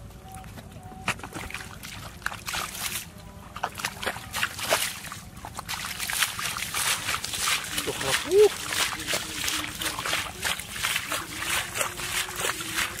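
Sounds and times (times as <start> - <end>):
bare feet squelching through mud: 0.2 - 13.0.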